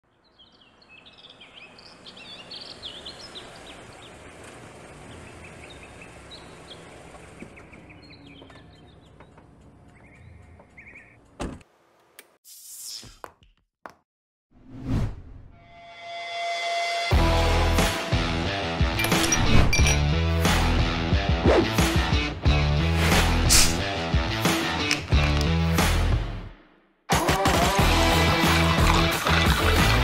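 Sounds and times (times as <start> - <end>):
birds chirping: 0.1 - 11.4
low rumble of traffic: 0.1 - 12.0.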